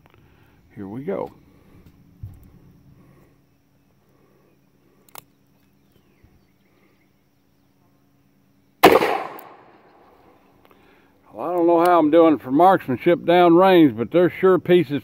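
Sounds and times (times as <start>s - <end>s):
revolver gunshot: 8.8s - 10.0s.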